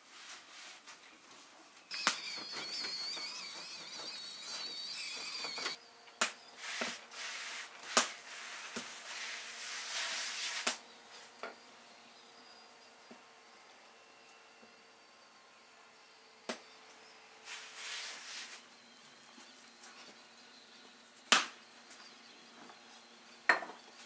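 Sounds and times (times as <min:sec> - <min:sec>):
hands rubbing flour on dough: 0:06.6 - 0:10.8, 0:17.4 - 0:18.7.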